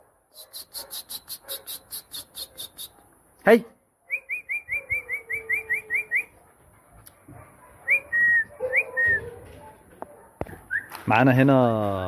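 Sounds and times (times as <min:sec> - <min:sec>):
two-part whistles: 0:00.4 - 0:02.9, 0:04.1 - 0:06.3, 0:07.9 - 0:09.2, 0:10.7 - 0:11.0.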